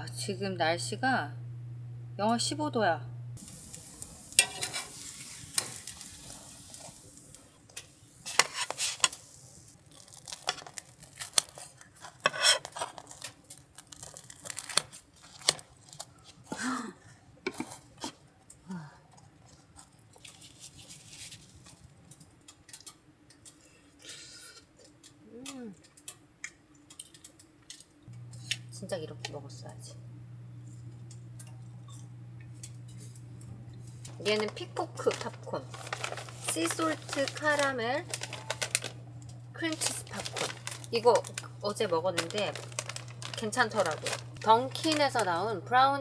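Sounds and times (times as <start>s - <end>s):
pancake sizzling in a skillet: 3.4s - 11.5s
metal tongs clattering: 4.3s - 6.0s
kitchen scissors cutting: 4.3s - 6.2s, 10.0s - 16.1s, 26.9s - 28.7s.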